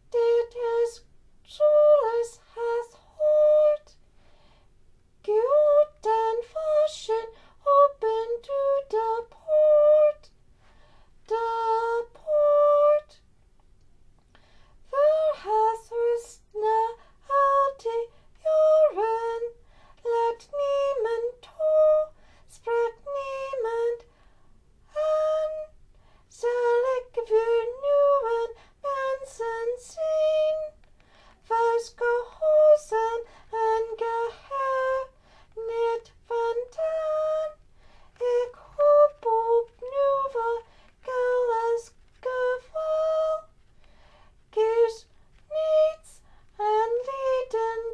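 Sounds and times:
woman singing unaccompanied: 0:00.0 - 0:04.0, 0:05.2 - 0:10.4, 0:11.2 - 0:13.2, 0:14.8 - 0:24.1, 0:24.8 - 0:43.6, 0:44.4 - 0:47.9.

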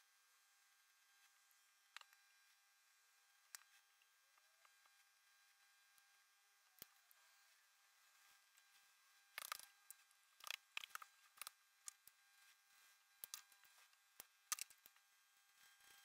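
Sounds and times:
markers clicking and tapping on desk: 0:09.4 - 0:09.7, 0:10.4 - 0:12.0.

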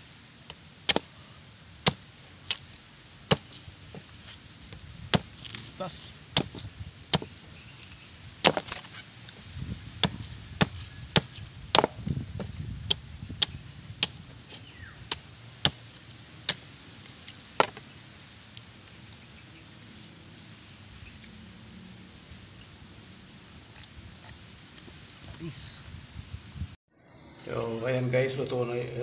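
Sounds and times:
machete chopping coconut husk: 0:00.5 - 0:09.1, 0:10.0 - 0:17.8.

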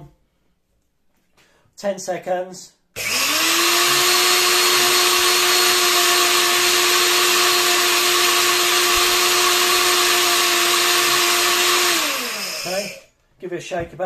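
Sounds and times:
grain grinder motor whine: 0:03.0 - 0:13.0.

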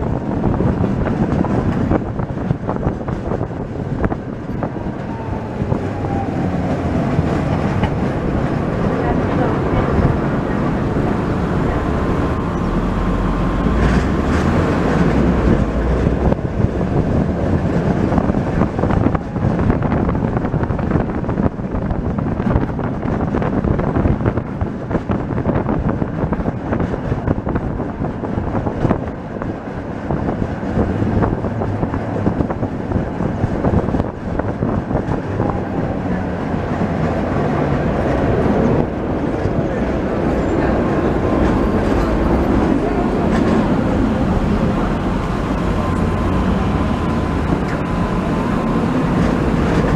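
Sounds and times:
tram wheels rumbling: 0:00.0 - 0:49.9.

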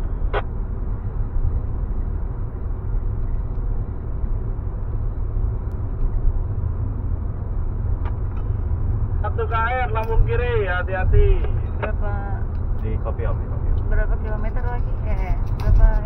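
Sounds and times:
car cabin road noise: 0:00.0 - 0:16.0.

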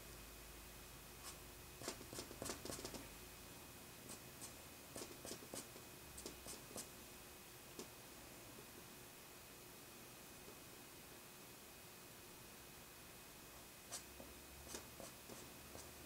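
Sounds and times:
pencil scratching on paper: 0:01.2 - 0:03.0, 0:04.1 - 0:06.9, 0:13.9 - 0:16.0.

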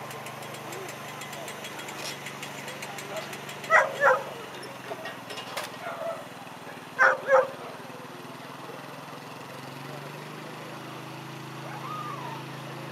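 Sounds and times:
low engine hum: 0:00.0 - 0:12.9
dog barking: 0:03.7 - 0:04.4, 0:05.8 - 0:06.3, 0:07.0 - 0:07.6.

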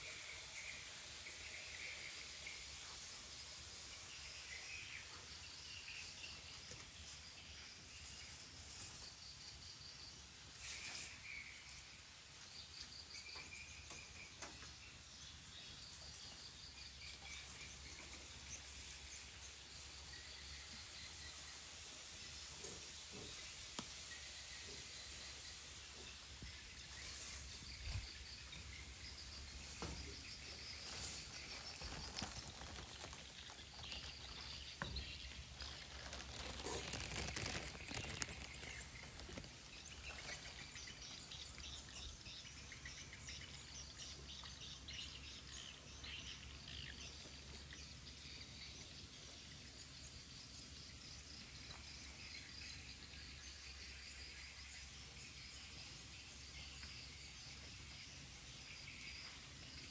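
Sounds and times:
insects chirping: 0:00.0 - 0:59.9
birds chirping: 0:23.1 - 0:50.1
rustling: 0:26.9 - 0:41.3.

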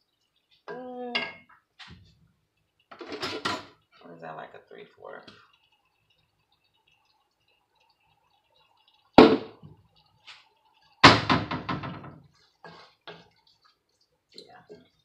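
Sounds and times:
wooden spoon knocking on pan: 0:09.2 - 0:09.8, 0:11.0 - 0:13.3.

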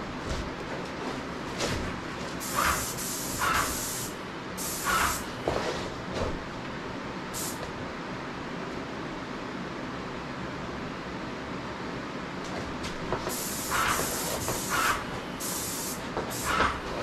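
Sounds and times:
paint sprayer hissing: 0:02.4 - 0:05.3, 0:07.4 - 0:07.6, 0:13.3 - 0:16.8.

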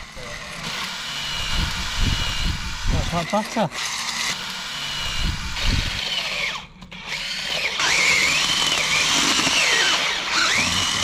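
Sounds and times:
cordless drill motor whine: 0:00.0 - 0:11.0.

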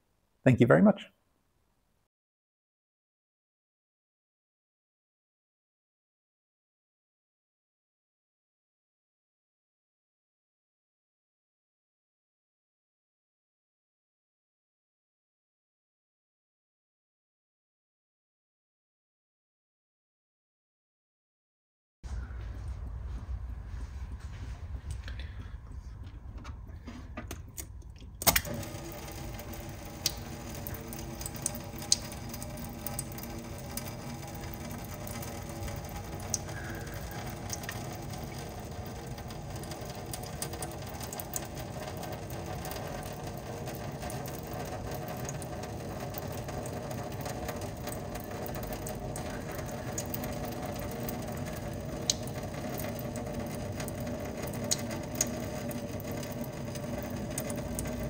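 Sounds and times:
water streams falling into steel sink: 0:27.3 - 0:58.0.

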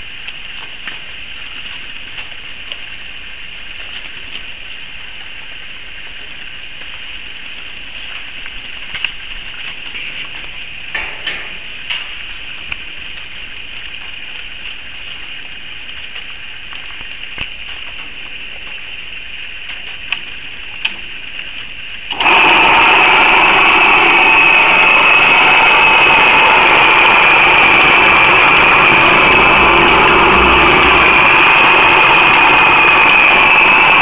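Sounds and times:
steady hiss: 0:00.0 - 0:34.0
electric motor running: 0:07.3 - 0:13.5, 0:22.1 - 0:34.0.

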